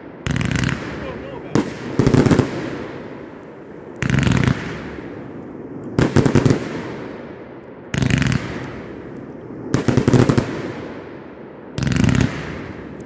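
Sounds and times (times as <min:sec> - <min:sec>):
firework volleys of rapid cracks: 0:00.2 - 0:07.3, 0:07.9 - 0:11.1, 0:11.7 - 0:13.0.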